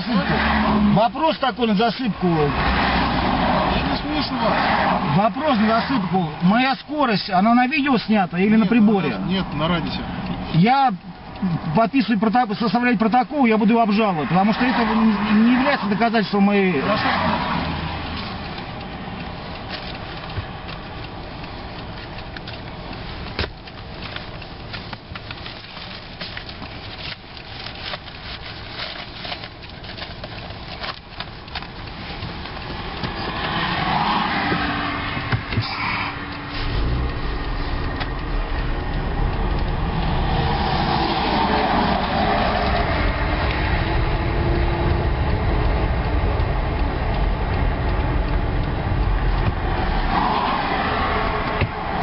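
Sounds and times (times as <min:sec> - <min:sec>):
car engine and road noise: 0:00.0 - 0:52.0
papers rustling: 0:22.5 - 0:33.6.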